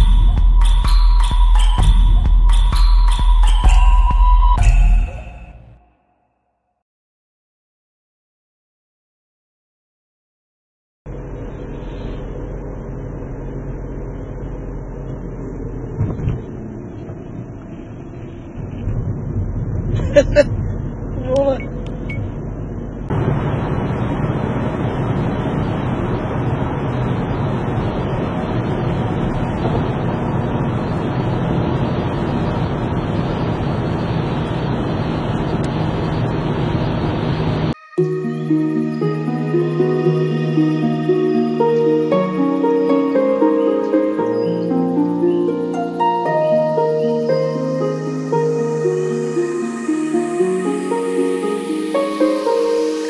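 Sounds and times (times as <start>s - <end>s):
tyre and road noise: 11.1s - 37.7s
car engine hum: 11.1s - 53.0s.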